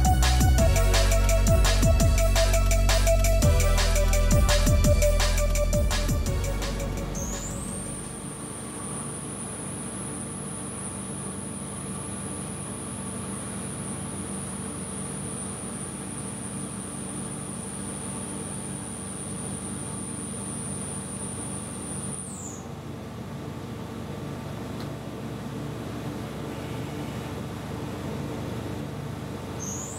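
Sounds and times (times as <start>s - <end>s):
high milling whine: 0.0s - 22.3s.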